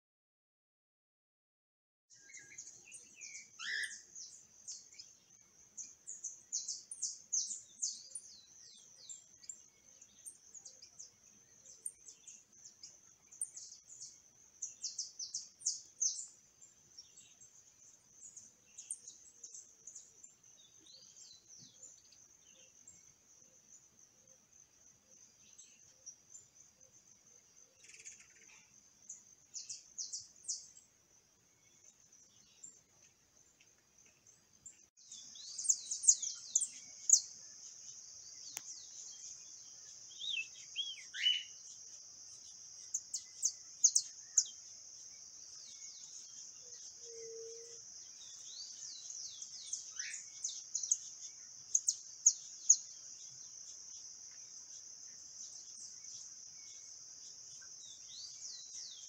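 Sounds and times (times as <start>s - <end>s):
finches chirping: 2.2s - 23.2s, 34.6s - 59.0s.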